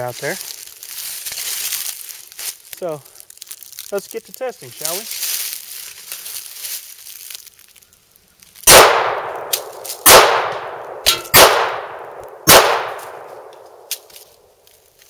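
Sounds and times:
pistol shots with long echo: 0:08.7 - 0:13.9.

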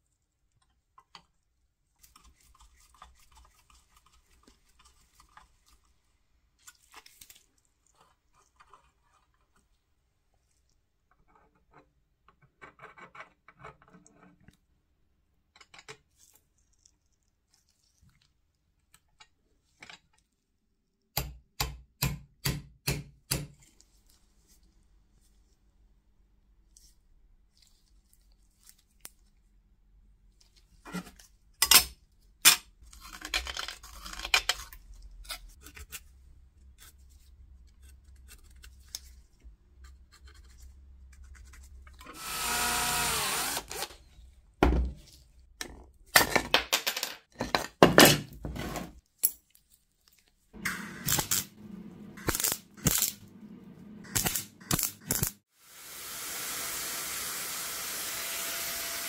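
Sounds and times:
motor whirr: 0:42.1 - 0:43.9
rotary sanding tool running: 0:42.1 - 0:43.9, 0:55.6 - 0:59.0.

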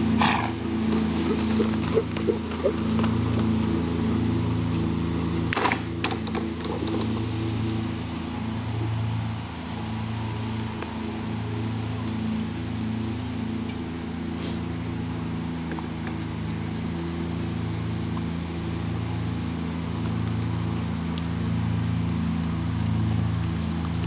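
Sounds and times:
engine idling: 0:00.0 - 0:24.0.

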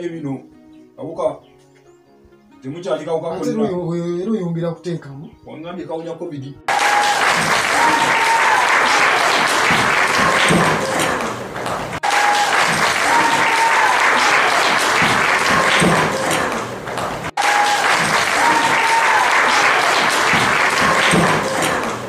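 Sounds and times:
crowd applause: 0:06.7 - 0:22.0.

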